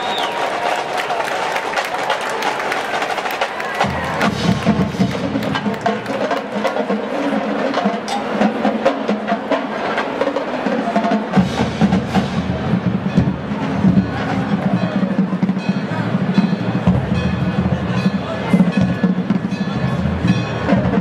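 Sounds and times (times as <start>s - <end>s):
snare and tenor drums: 3.1s - 15.6s
bass drums: 3.8s - 5.9s.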